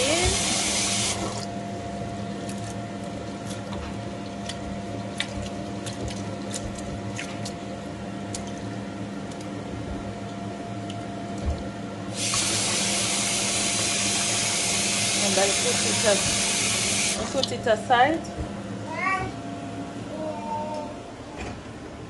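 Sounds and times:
kitchen tap running: 0.0 - 1.5, 12.1 - 17.8.

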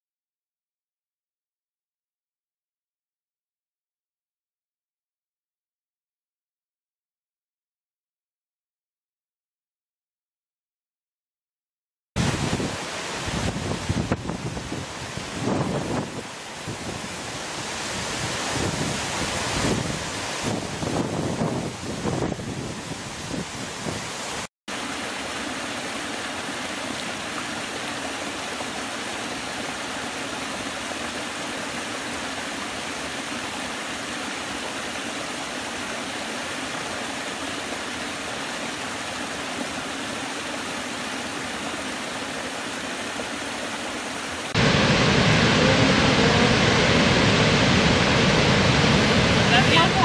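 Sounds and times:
waterfall roaring: 12.2 - 50.0
water splashing over rocks: 24.2 - 50.0.

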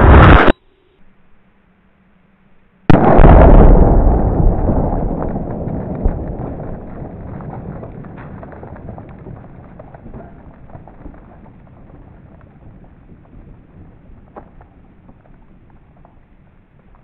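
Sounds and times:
low rumble: 2.9 - 17.0
brick fragments pattering down: 4.5 - 17.0.

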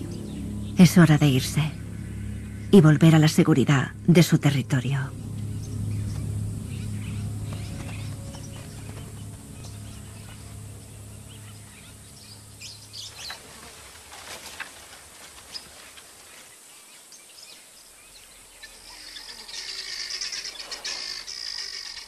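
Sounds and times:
faint insects: 0.0 - 22.0
bird chirps: 5.3 - 13.6.

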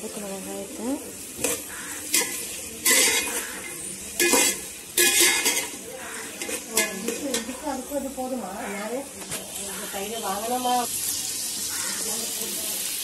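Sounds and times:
onions sizzling in oil: 0.0 - 13.0
spatula scraping metal pot: 1.4 - 7.6.

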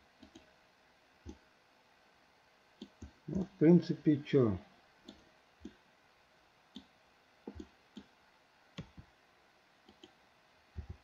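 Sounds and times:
mouse and keyboard clicks: 8.8 - 9.1, 9.8 - 10.2.

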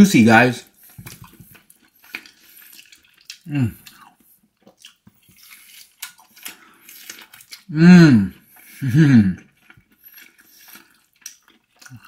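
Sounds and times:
wet chewing: 0.6 - 12.0
man humming with mouth full: 7.7 - 9.4.

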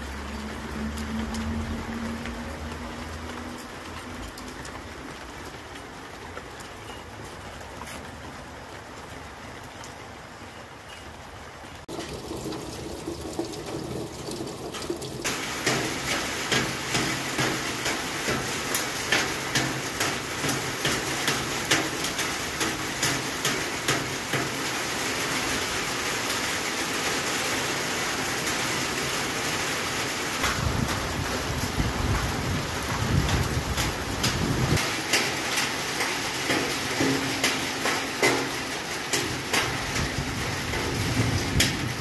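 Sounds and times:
steady rain falling: 0.0 - 42.0.

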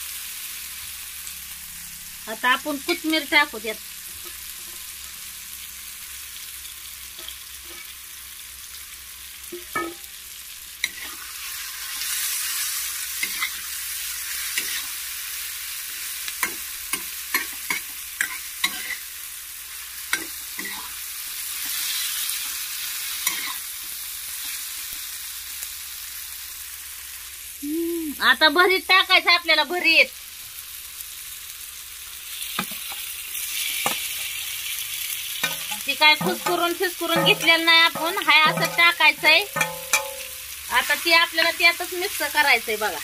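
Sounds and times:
vegetables sizzling in hot oil: 0.0 - 43.0
metal spatula scraping pan: 14.4 - 14.9, 35.4 - 40.6.

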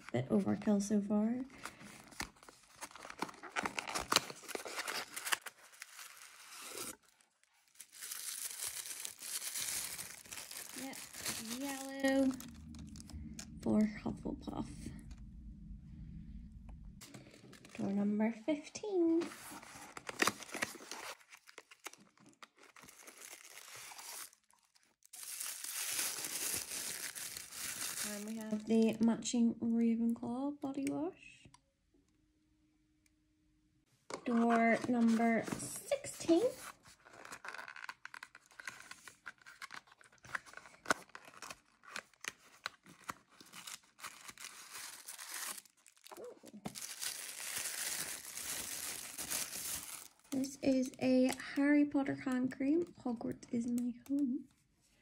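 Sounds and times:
tissue paper crinkling: 1.6 - 13.6, 19.2 - 28.7, 36.3 - 50.9.

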